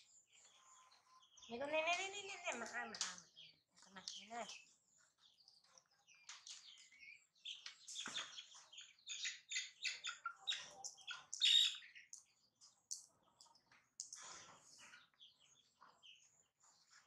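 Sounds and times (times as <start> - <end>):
baby monkeys chirping and squeaking: 2.6 - 12.2.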